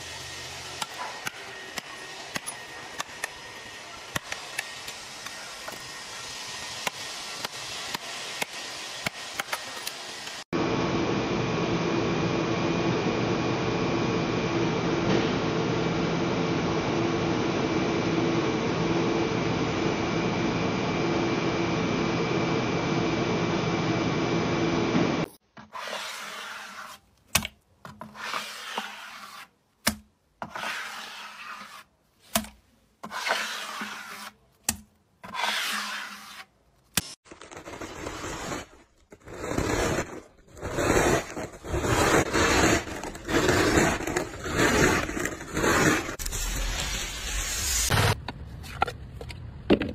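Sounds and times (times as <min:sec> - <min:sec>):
scraper dragging through slime: 0:25.7 - 0:27.1, 0:28.0 - 0:29.6, 0:30.4 - 0:32.3, 0:33.0 - 0:34.5, 0:35.2 - 0:36.5, 0:37.6 - 0:46.2
scraping through hard candy: 0:37.3 - 0:46.6.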